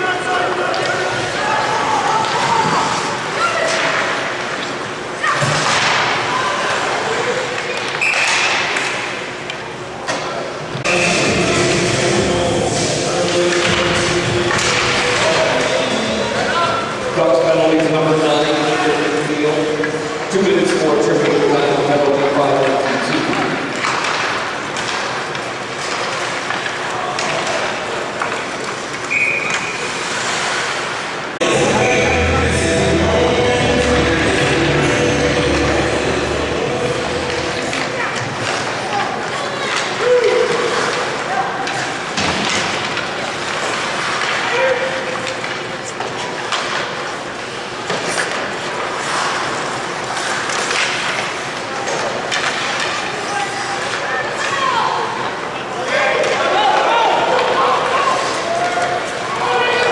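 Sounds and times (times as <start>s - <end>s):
arena noise: 0.0s - 59.9s
hockey sticks and puck clacking: 5.4s - 6.8s, 7.5s - 11.2s, 12.0s - 31.2s, 33.8s - 55.4s
voices: 10.0s - 25.0s, 31.4s - 46.1s
skate blades scraping ice: 28.4s - 31.1s, 45.8s - 54.1s.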